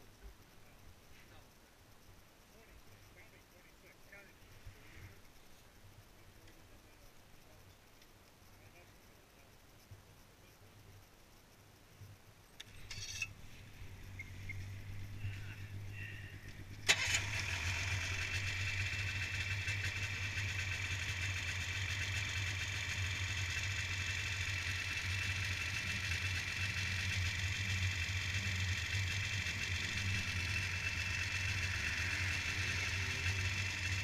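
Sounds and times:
snowmobile engine starting and idling: 0:12.6 - 0:34.0.

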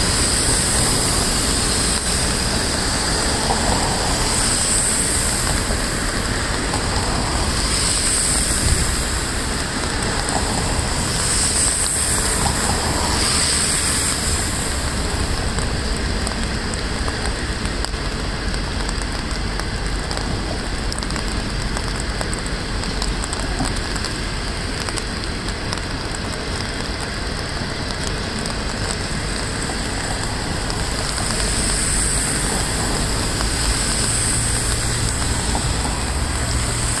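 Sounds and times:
train coaches rumbling past: 0:00.0 - 0:16.8
heavy rain hiss: 0:00.0 - 0:37.0.

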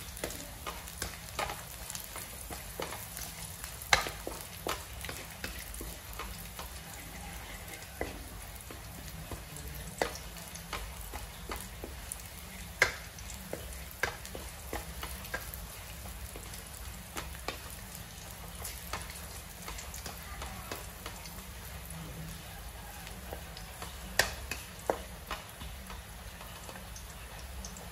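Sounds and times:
garlic frying in oil: 0:00.0 - 0:27.9
wooden spatula scraping a wok: 0:00.1 - 0:20.2.

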